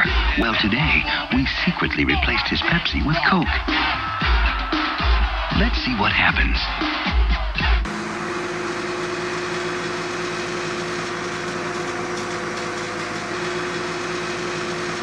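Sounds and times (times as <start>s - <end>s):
truck engine idling: 7.8s - 15.0s.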